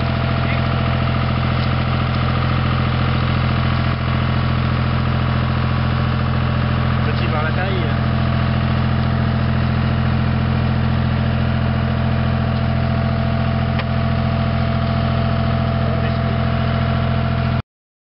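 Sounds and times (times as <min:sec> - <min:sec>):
tractor engine running: 0:00.0 - 0:17.6.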